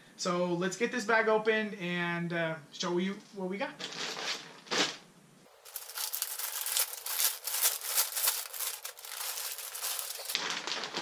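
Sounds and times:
plastic bag crinkling: 0:05.5 - 0:11.0.

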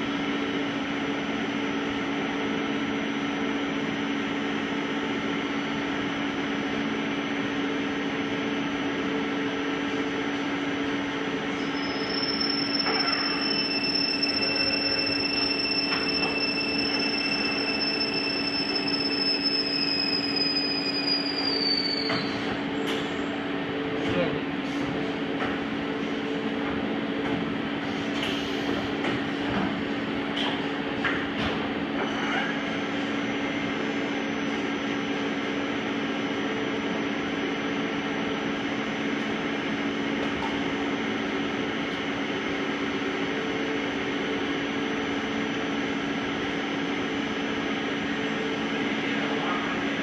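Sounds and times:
machining center humming: 0:00.0 - 0:50.0
high whine: 0:11.3 - 0:23.3.

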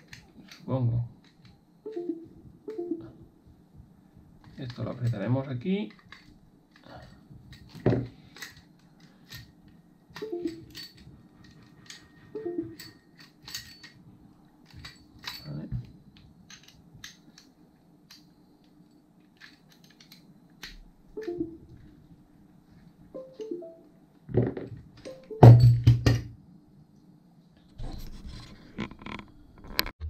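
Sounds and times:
small metal parts clattering: 0:05.8 - 0:09.5, 0:10.2 - 0:12.2, 0:12.8 - 0:14.0, 0:14.6 - 0:15.6, 0:16.4 - 0:17.5, 0:19.3 - 0:20.8.

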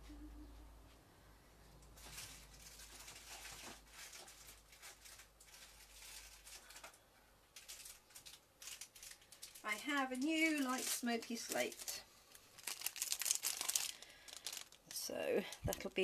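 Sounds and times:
hands rummaging through supplies: 0:12.6 - 0:16.0.

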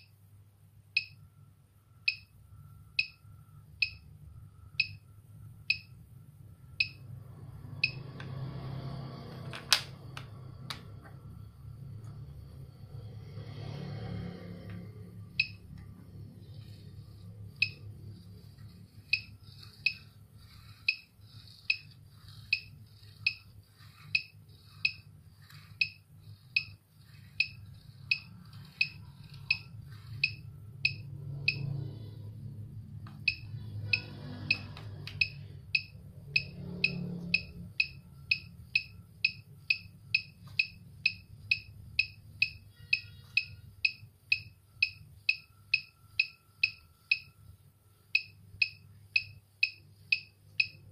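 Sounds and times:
low steady hum: 0:00.0 - 0:50.9
short high electronic beeps: 0:42.4 - 0:43.6.

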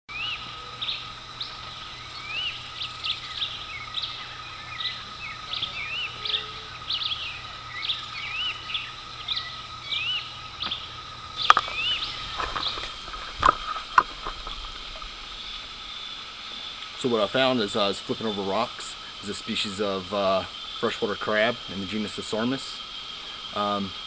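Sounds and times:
birds whistling: 0:00.1 - 0:17.0
steady high hum: 0:00.1 - 0:24.0.

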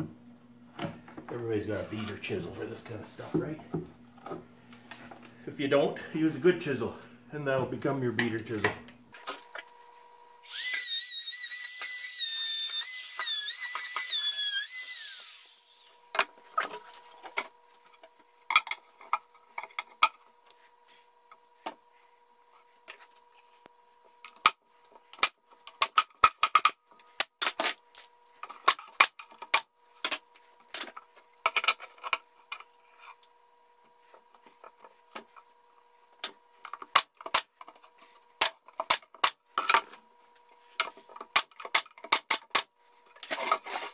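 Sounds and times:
electric router whining: 0:10.4 - 0:16.0.

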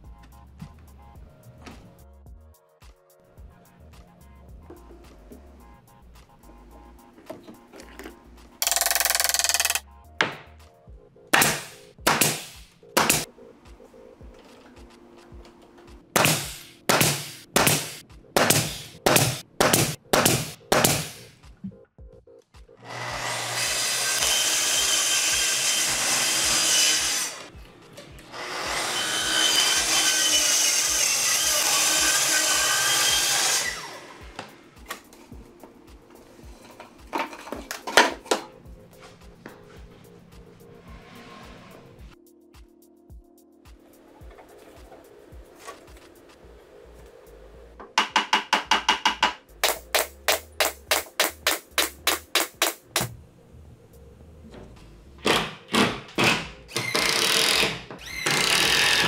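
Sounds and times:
pneumatic nailer firing: 0:08.6 - 0:09.8, 0:11.4 - 0:13.3, 0:16.2 - 0:21.3, 0:22.8 - 0:27.5, 0:28.3 - 0:34.5, 0:55.2 - 0:59.0
track saw cutting plywood: 0:22.8 - 0:34.8, 0:55.3 - 0:59.0.

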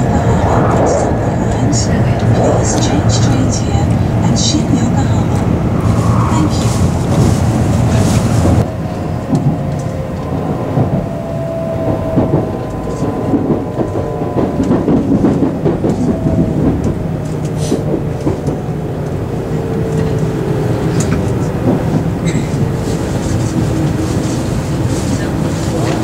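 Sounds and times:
faint whine sliding in pitch: 0:00.0 - 0:08.2
train cabin running rumble: 0:00.0 - 0:26.0.

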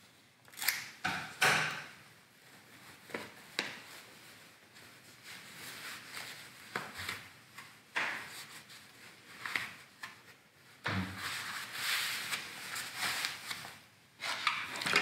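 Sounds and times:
glove rustling: 0:02.4 - 0:13.9.

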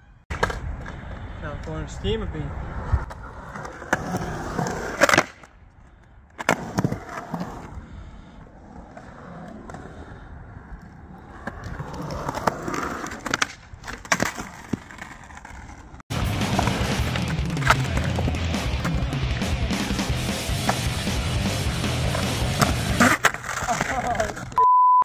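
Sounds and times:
skateboard wheels rumbling: 0:00.3 - 0:24.6
skateboard clacks: 0:10.8 - 0:24.6.

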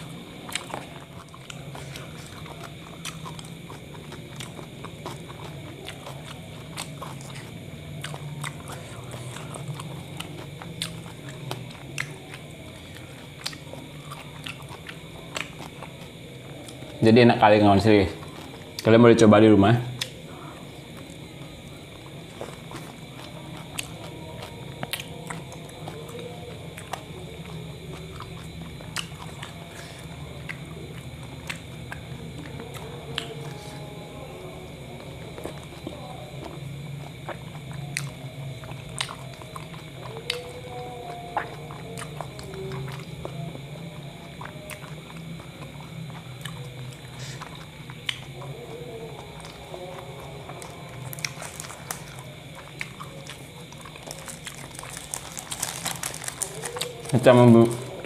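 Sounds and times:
person chewing food: 0:00.0 - 0:18.9, 0:19.9 - 0:58.0
steady low hum: 0:00.0 - 0:58.0
paper wrapper crinkling: 0:54.0 - 0:57.9.

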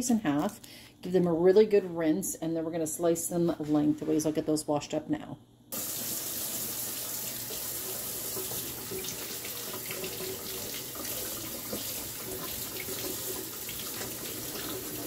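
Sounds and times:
faucet running into steel sink: 0:05.8 - 0:15.0.

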